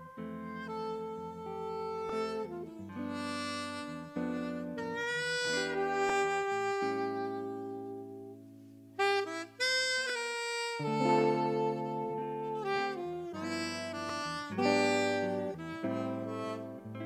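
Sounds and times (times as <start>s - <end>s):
alto saxophone jazz ballad: 0.0s - 17.0s
soft band chords: 0.0s - 17.0s.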